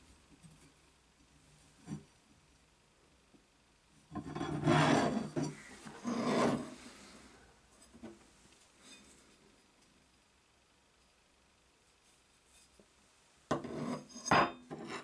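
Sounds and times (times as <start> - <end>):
files scraping on wood: 4.4 - 6.8.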